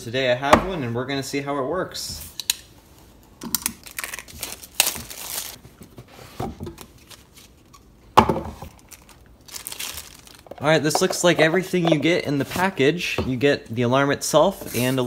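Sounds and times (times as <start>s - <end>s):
packaging rustling and tearing: 3.6s - 5.6s, 6.7s - 7.9s, 8.6s - 10.6s.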